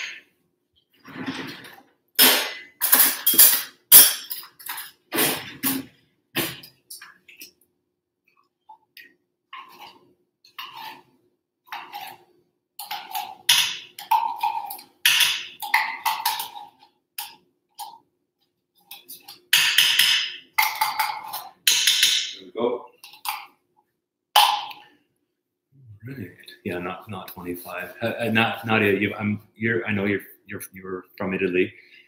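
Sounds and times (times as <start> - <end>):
metal spoon scraping metal pot: 9.6 - 11.1, 11.7 - 14.9.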